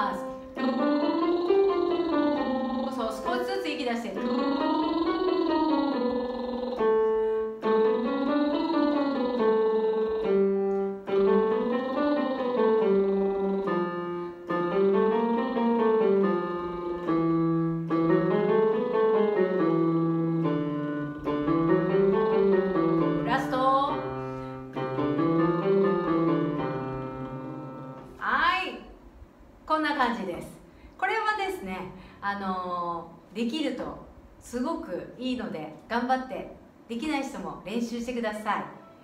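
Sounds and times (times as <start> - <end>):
electronic keyboard note runs: 4.2 - 28.1.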